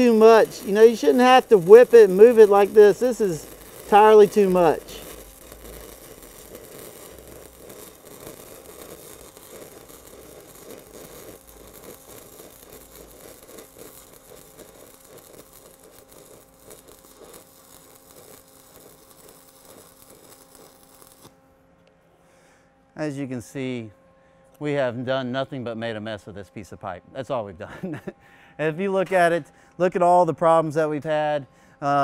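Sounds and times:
welding arc crackling: 0.0s - 21.4s.

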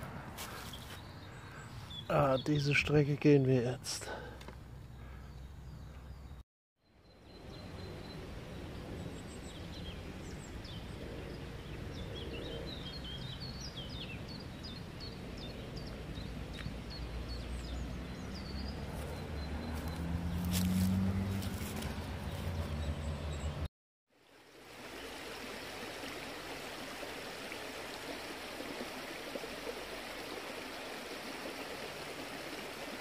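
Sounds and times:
songbirds chirping: 0.0s - 23.7s
footsteps: 19.8s - 22.7s.

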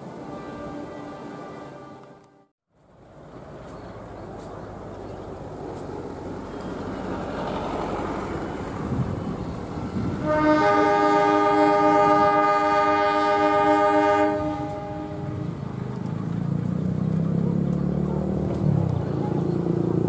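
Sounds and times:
locomotive horn blast: 0.0s - 2.5s, 10.2s - 15.6s
locomotive rumble: 0.0s - 20.0s.

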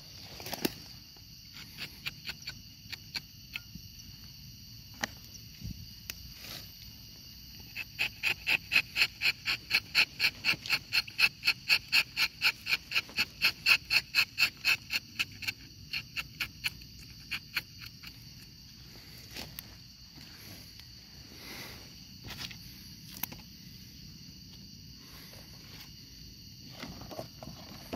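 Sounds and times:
high insect drone: 0.0s - 27.9s.

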